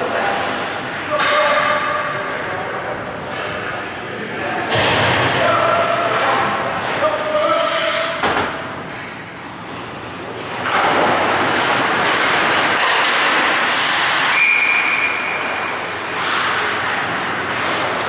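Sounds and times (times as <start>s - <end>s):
skate blades scraping ice: 10.4s - 18.0s.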